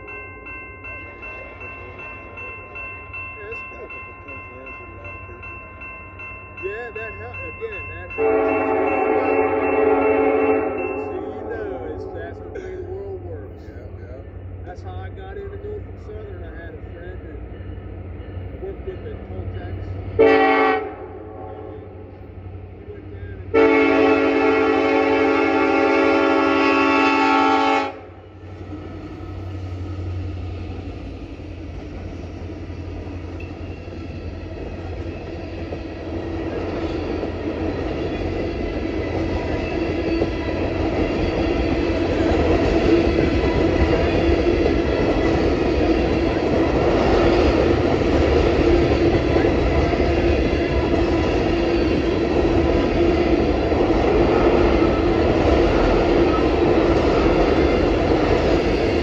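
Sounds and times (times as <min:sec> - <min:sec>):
steady ringing tone: 0:00.0 - 0:12.5
freight train wheels rumbling on rail: 0:00.0 - 0:59.0
wheels clickety-clack: 0:31.7 - 0:59.0.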